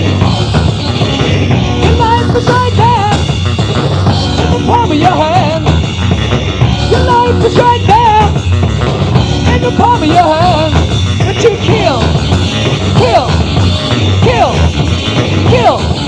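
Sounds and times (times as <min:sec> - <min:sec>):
bass guitar: 0:00.0 - 0:16.0
bending electric guitar melody: 0:00.0 - 0:16.0
drums: 0:00.0 - 0:16.0.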